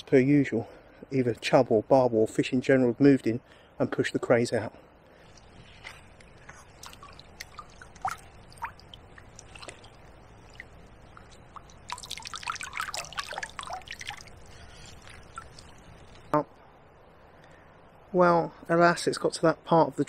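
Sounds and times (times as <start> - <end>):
water dripping: 5.1 - 16.4
fish splashing in water: 5.3 - 16.3.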